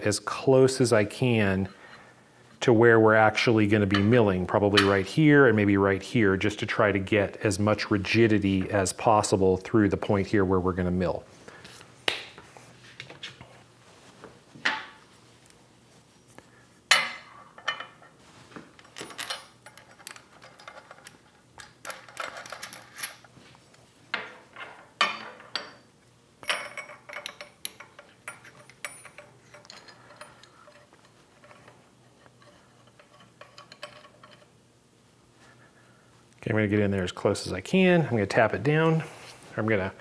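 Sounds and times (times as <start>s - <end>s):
metal clamps clinking and clanking: 26.4s - 34.5s.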